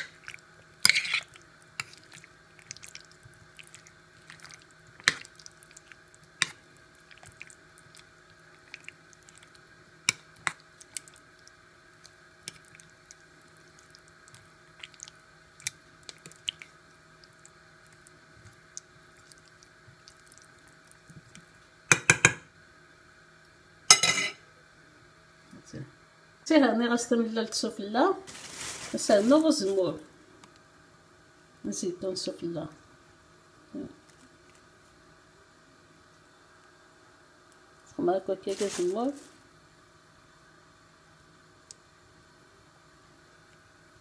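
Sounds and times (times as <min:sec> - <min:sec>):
wet squishing of sauce being stirred: 0:00.0 - 0:21.6, 0:34.0 - 0:34.9, 0:38.5 - 0:39.3
faint steady hum: 0:00.0 - 0:44.0.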